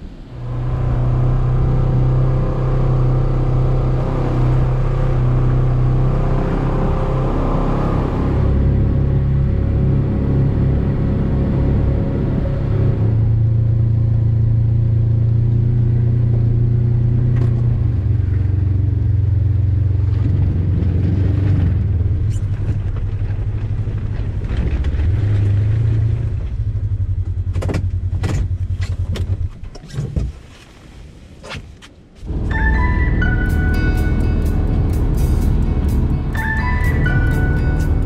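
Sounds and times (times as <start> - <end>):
utility vehicle engine running: 32.3 - 38.0.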